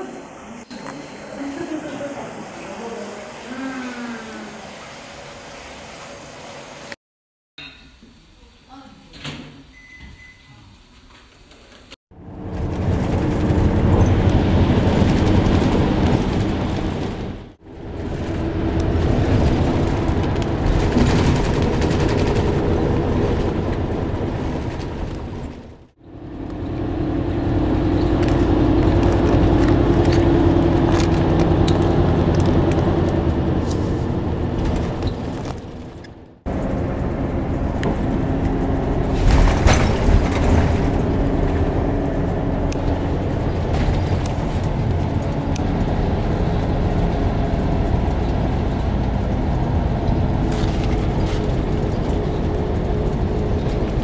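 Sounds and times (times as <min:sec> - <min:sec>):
road noise: 0:00.0 - 0:07.0, 0:12.1 - 0:54.0
vehicle engine drone: 0:12.1 - 0:54.0.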